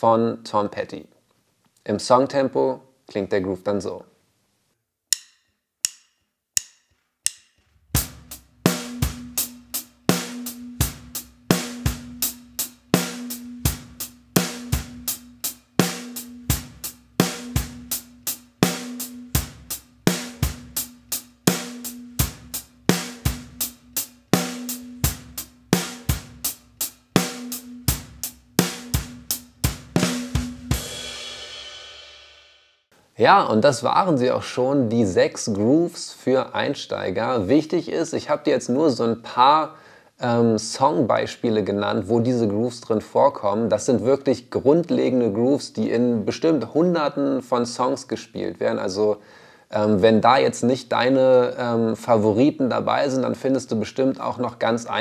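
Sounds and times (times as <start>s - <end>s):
drum kit playing rock groove: 6.6s - 32.6s.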